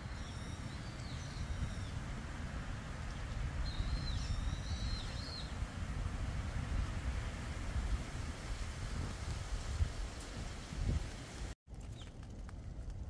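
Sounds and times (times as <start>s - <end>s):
small bird calling: 0.0s - 2.0s, 3.1s - 5.6s
wind rumbling on microphone: 0.0s - 13.0s.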